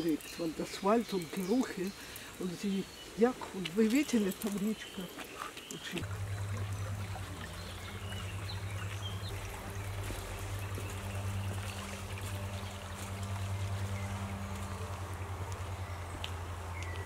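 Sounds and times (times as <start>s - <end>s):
stream running over stones: 0.0s - 17.0s
constant low hum: 5.8s - 17.0s.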